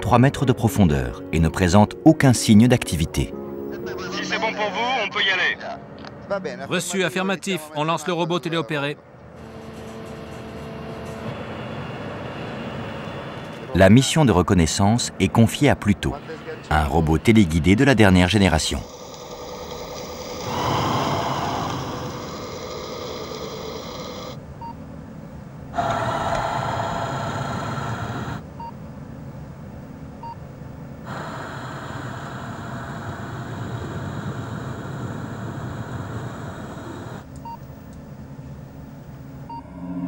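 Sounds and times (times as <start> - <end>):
underwater robot thrusters humming: 18.4 - 24.4, 25.8 - 28.4, 31.1 - 37.3.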